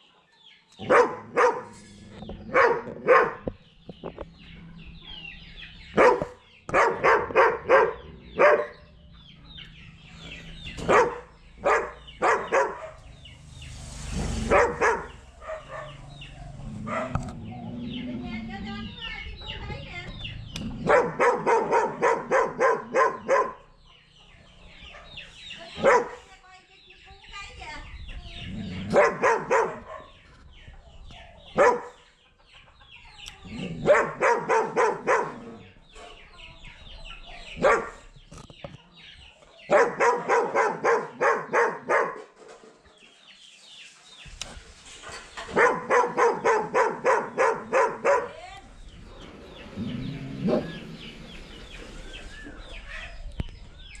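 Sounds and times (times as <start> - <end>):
chickens clucking: 26.9 - 54.0.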